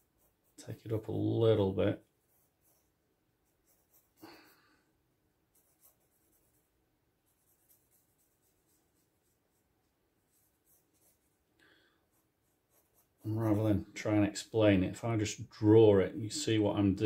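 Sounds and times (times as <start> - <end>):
pencil scratching on paper: 0.0 - 1.3, 2.2 - 4.6, 5.4 - 13.9.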